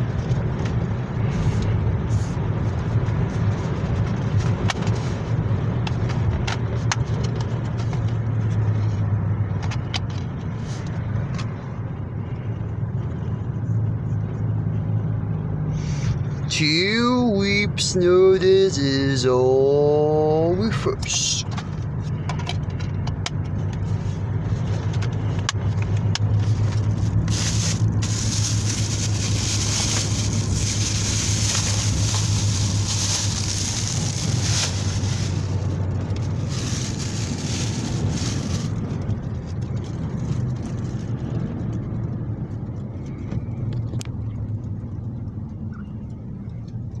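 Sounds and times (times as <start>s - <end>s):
car engine hum: 0.0s - 47.0s
tyre and road hiss: 26.2s - 39.1s.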